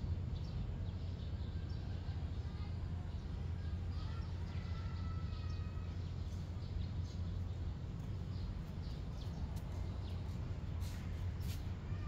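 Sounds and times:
steady low rumble: 5.7 - 11.9.

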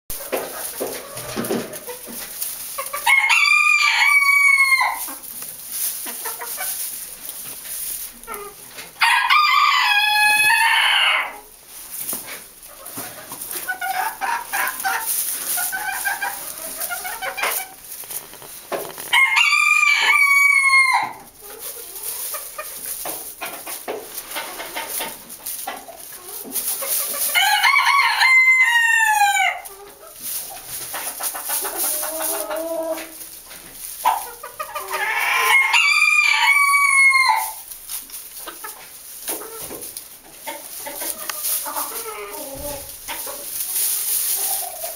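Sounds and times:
hen clucking: 0.1 - 44.9
rooster crowing: 3.1 - 5.0, 9.0 - 11.3, 19.1 - 21.2, 35.0 - 37.6.

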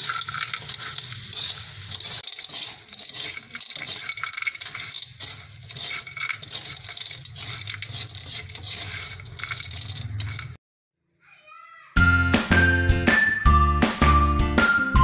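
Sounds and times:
hot oil sizzling: 0.0 - 10.6
metal spatula scraping a wok: 0.0 - 10.6.

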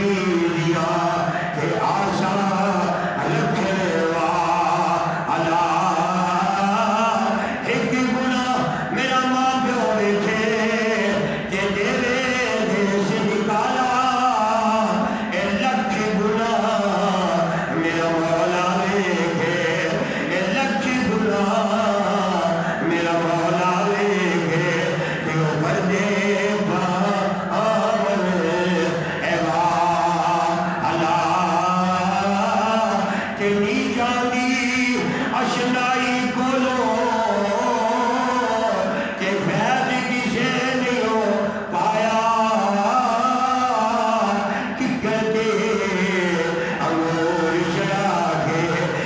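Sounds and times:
man chanting melodically: 0.0 - 49.0
man singing unaccompanied: 0.0 - 49.0.

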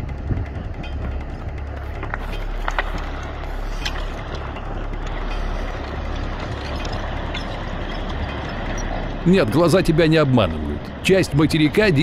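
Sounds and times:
low outdoor rumbling: 0.0 - 12.0.

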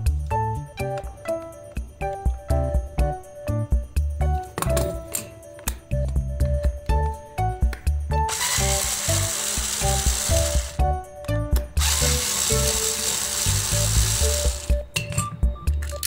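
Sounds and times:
electric screwdriver running: 8.3 - 10.8, 11.8 - 14.8.

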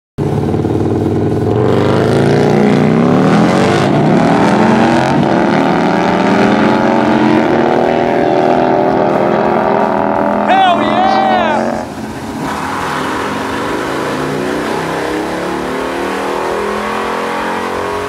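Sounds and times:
motorcycle engine accelerating: 0.2 - 10.9.

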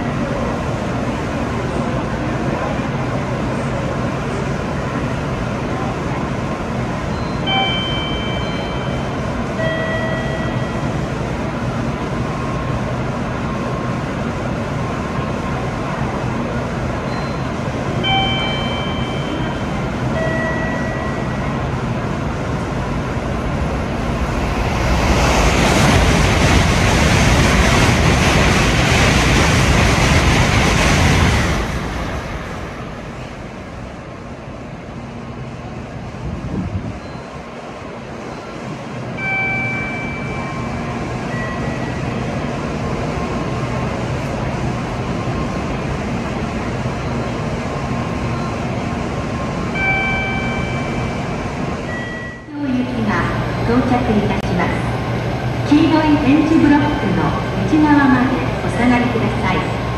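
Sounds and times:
high-speed train rushing past: 0.0 - 59.9
electronic chime tones: 7.2 - 10.8, 18.0 - 21.4
steady rumble: 21.6 - 36.9.

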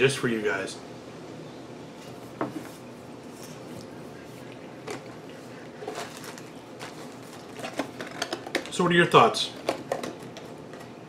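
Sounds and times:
people chewing: 3.4 - 8.7
cardboard box handling: 5.8 - 8.5.

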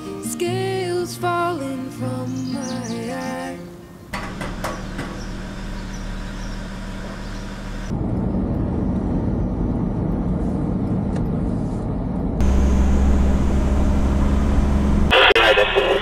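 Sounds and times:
low engine drone: 4.1 - 16.0
vehicle engine hum: 4.1 - 16.0
rough driving noise inside cab: 4.2 - 16.0.

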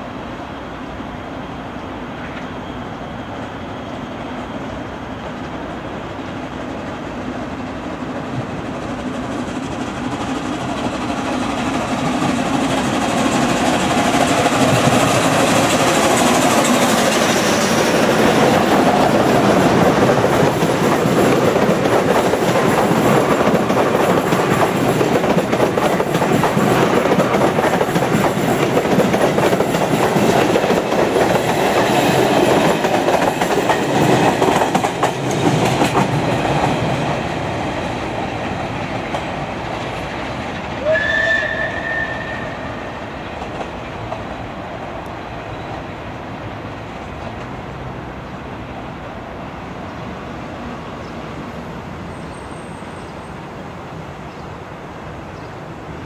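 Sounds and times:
steam locomotive passing: 0.0 - 56.0
train wheels clacking on rails: 4.2 - 45.9.

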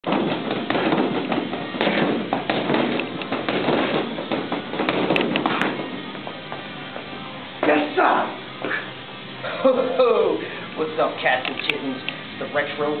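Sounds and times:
fists punching a punching bag: 0.0 - 6.6.

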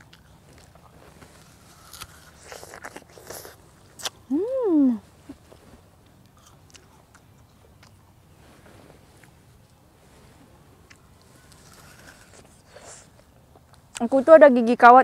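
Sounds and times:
crunching pear bite: 0.0 - 4.3, 6.2 - 8.0, 10.9 - 14.0
person humming: 4.3 - 5.0.

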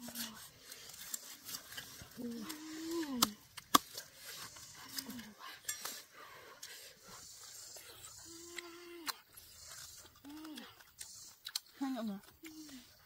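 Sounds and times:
cleaver cracking roasted skin: 0.8 - 4.1.

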